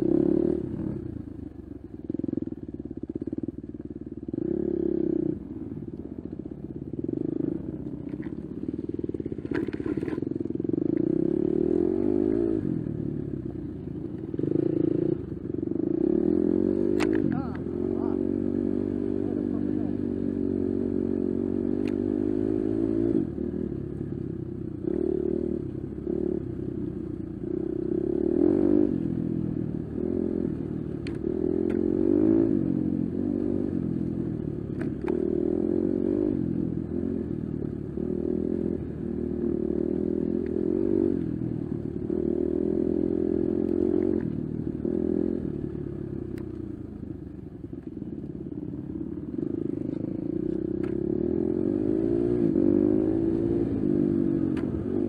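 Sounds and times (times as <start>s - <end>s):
dirt bike engine revving: 9.9s - 12.9s, 14.3s - 23.4s, 27.8s - 37.3s, 49.3s - 55.0s.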